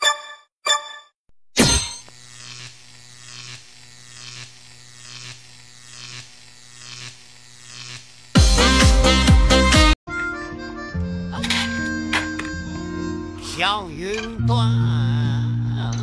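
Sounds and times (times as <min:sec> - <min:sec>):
plasma ball electric hum: 0:01.8 - 0:09.2
loud music: 0:08.4 - 0:10.0.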